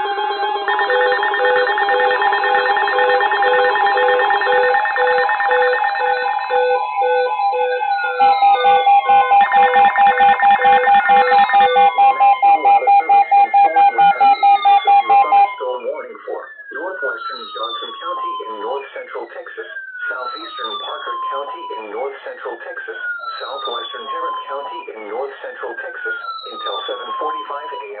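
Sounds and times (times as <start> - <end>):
repeating beeps: 0.0 - 18.6, 19.2 - 21.8, 22.8 - 24.9, 26.0 - 28.0
alarm steady tones: 0.0 - 28.0
fast loud beeping: 0.0 - 28.0.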